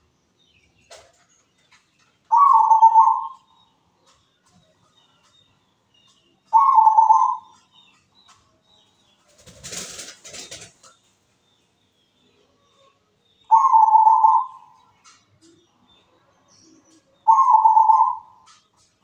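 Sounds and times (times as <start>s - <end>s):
dove cooing: 2.3s - 3.5s, 6.5s - 7.6s, 13.5s - 14.8s, 17.2s - 18.6s.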